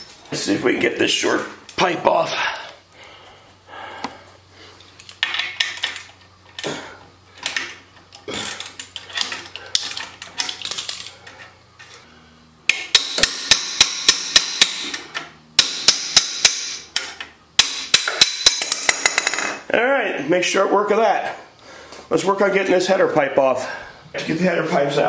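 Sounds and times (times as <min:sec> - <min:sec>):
ratchet wrench clicking: 0:12.7 - 0:19.5.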